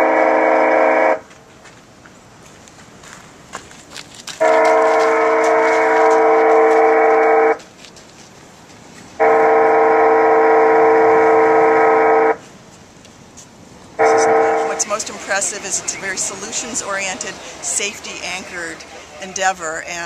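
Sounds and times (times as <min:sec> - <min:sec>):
warning horn blasts: 0:00.0 - 0:01.3, 0:04.4 - 0:07.6, 0:09.2 - 0:12.4, 0:14.0 - 0:20.0.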